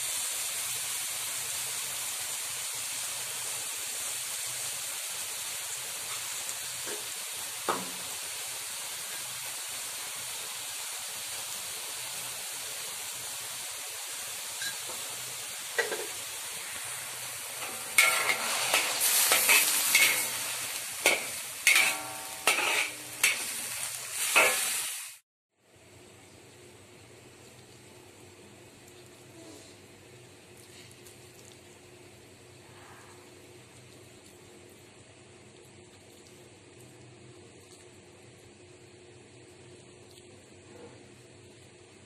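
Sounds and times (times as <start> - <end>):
food sizzling in hot pan: 0.0 - 25.2
metal spatula knocking pan: 17.6 - 20.4, 21.0 - 23.5
spatula scraping and clattering: 17.6 - 24.7.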